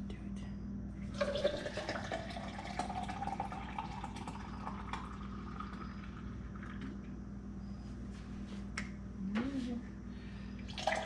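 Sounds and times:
liquid pouring into tumbler: 1.1s - 7.1s, 10.7s - 11.0s.

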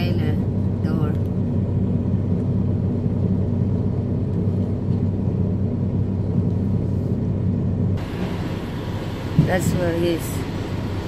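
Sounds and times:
diesel truck engine idling: 5.7s - 11.0s.

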